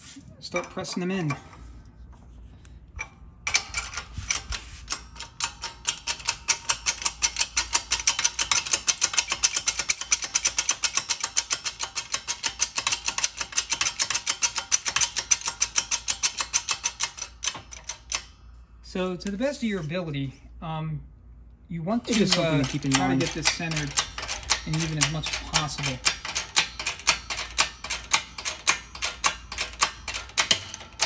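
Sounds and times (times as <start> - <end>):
shop press pumping clicks: 22.1 - 31.0.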